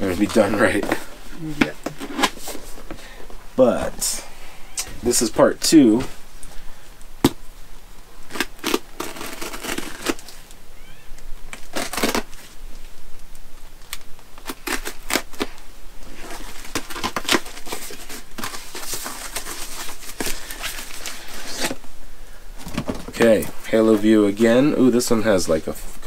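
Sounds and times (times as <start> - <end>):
knife scraping packing tape: 8.3 - 10.4, 11.5 - 12.4, 14.4 - 15.5, 16.2 - 21.8
cardboard flaps rustling: 14.5 - 21.8, 22.6 - 24.1.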